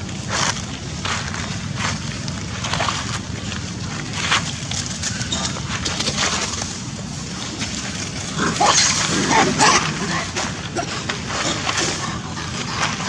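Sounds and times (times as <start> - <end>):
outdoor background noise: 0.0 - 13.0
monkeys calling: 8.2 - 13.0.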